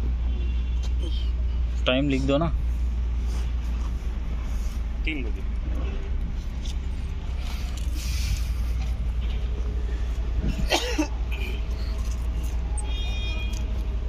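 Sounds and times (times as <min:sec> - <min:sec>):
cough-like vocal burst: 0:10.6 - 0:11.1.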